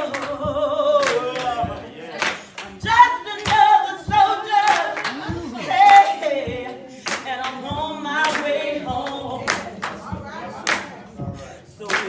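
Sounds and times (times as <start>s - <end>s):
choir singing: 0.0s - 12.0s
handclaps: 0.1s - 2.8s, 4.6s - 6.1s, 7.0s - 7.6s, 9.4s - 10.0s, 10.6s - 11.0s.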